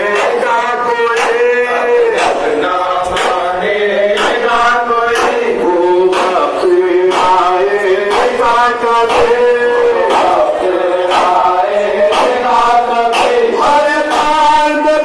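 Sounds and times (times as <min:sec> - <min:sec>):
men chanting over loudspeakers: 0:00.0 - 0:15.0
hands slapping chests: 0:00.1 - 0:00.5, 0:02.1 - 0:03.5, 0:04.1 - 0:05.5, 0:06.1 - 0:06.5, 0:07.1 - 0:09.4, 0:12.1 - 0:12.5, 0:13.1 - 0:13.5.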